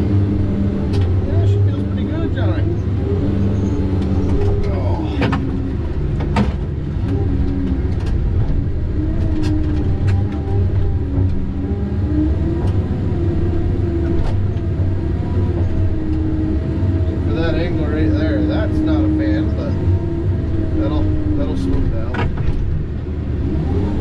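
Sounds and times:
diesel engine running: 0.0 - 24.0
sharp clicks and knocks: 0.9 - 1.2, 4.0 - 11.4, 21.8 - 22.8.

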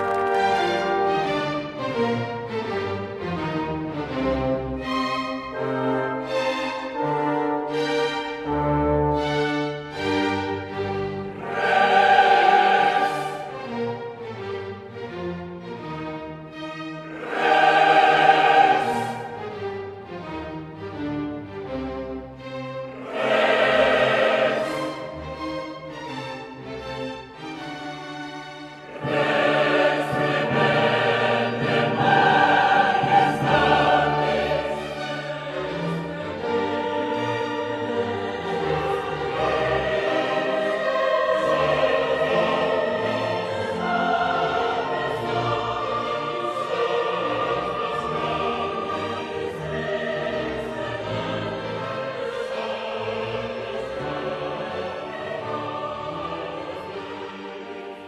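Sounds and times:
choral opera singing: 4.2 - 14.5, 17.0 - 20.2, 22.8 - 25.6, 28.8 - 58.0.

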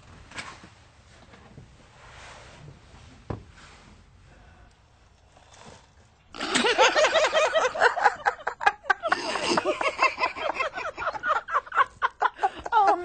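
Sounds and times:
people laughing and snickering: 6.4 - 13.0
people talking: 12.6 - 13.0.

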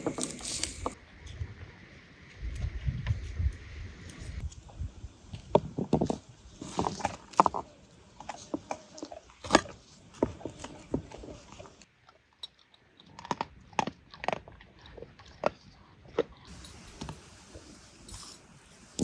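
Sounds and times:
dog chewing with crunches: 6.0 - 18.4.

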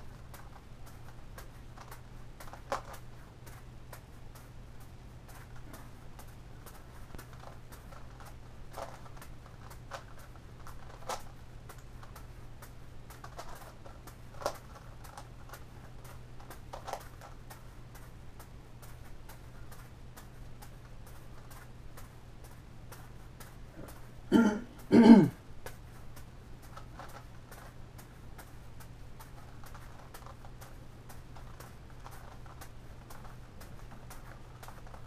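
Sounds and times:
steady low hum: 0.0 - 35.0
plastic puzzle clicking: 13.1 - 15.6.

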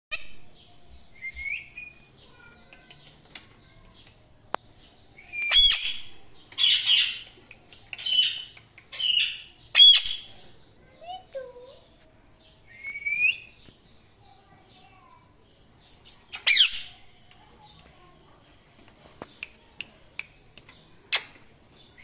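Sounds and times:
parakeets chirping and squawking: 5.5 - 7.2, 8.0 - 10.3, 16.4 - 17.0.

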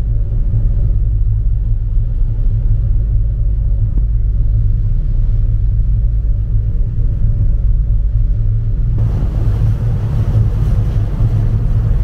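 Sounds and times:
ferry engines rumbling: 8.9 - 12.0.

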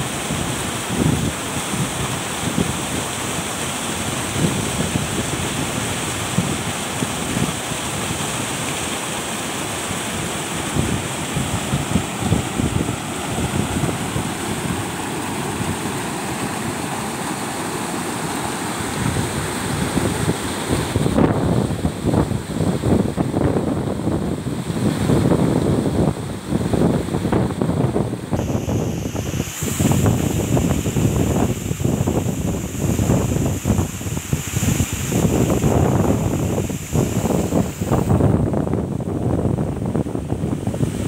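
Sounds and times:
waterfall rushing: 0.0 - 22.7, 28.3 - 38.7
wind buffeting microphone: 10.7 - 16.3, 18.8 - 41.0.

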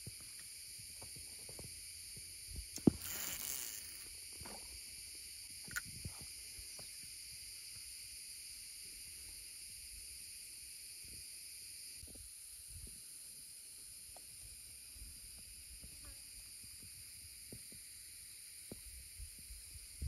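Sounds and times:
high-pitched insect buzzing: 2.5 - 4.3.

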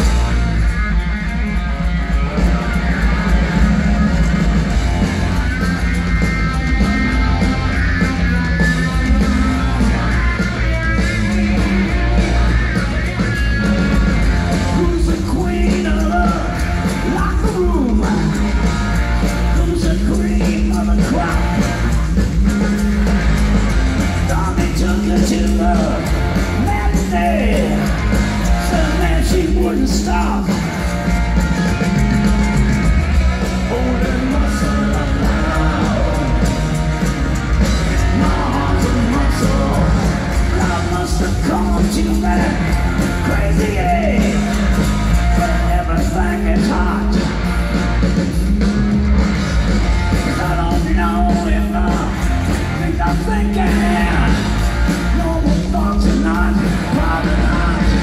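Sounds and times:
live rock band playing: 0.0 - 58.0.

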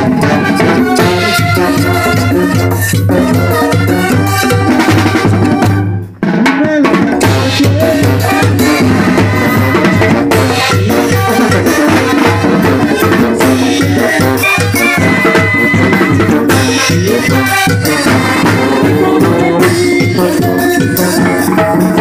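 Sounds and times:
drums and cymbals: 0.0 - 22.0
latin dance band playing: 0.0 - 22.0.

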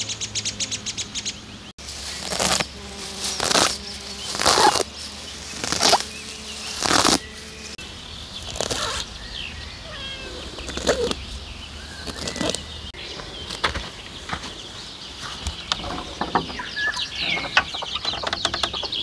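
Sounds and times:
grass being pulled up: 1.8 - 7.8, 8.4 - 9.1, 10.2 - 11.2, 11.9 - 12.7.

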